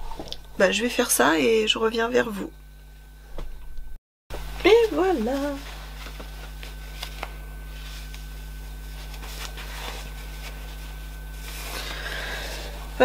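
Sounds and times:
steady low hum: 0.0 - 13.0
fabric rustling: 4.4 - 13.0.

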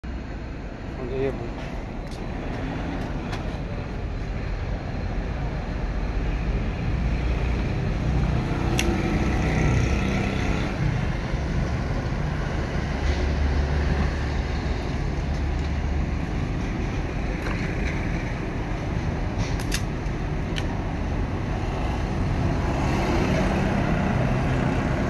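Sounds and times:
road traffic rumble: 0.0 - 25.0
sharp click: 8.7 - 9.0, 19.4 - 19.9.

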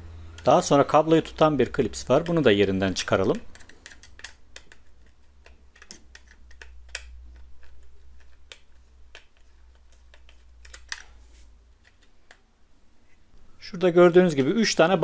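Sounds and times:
low steady hum: 0.0 - 15.0
screwdriver clicks and scrapes: 3.4 - 11.2.

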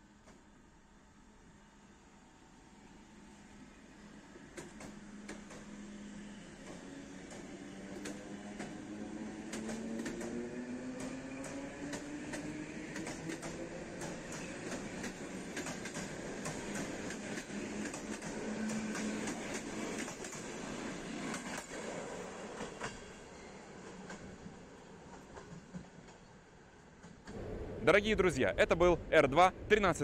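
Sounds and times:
wheels clicking over rails: 6.6 - 21.9.

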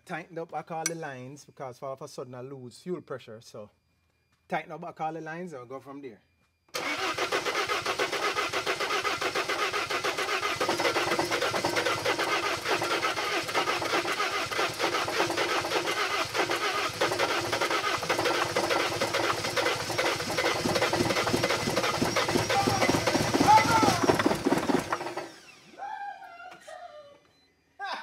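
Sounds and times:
diesel engine cranking: 6.7 - 25.8.

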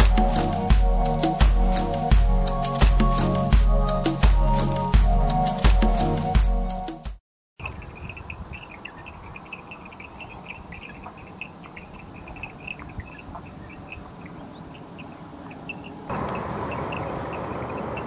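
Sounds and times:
wind rumble on microphone: 7.6 - 14.7
small animals chirping: 7.6 - 18.0.

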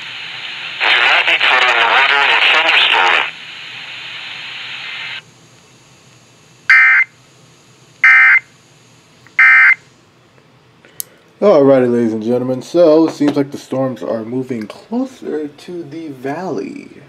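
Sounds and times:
radio hiss: 0.0 - 6.1
buzzy radio tone bursts: 0.2 - 5.2.

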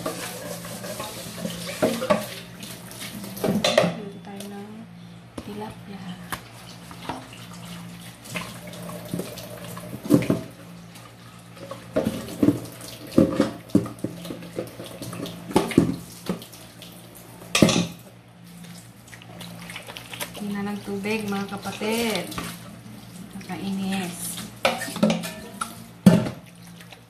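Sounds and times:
pot clattering against metal sink: 0.0 - 2.4, 24.6 - 26.4
pot being scrubbed: 0.0 - 3.3.

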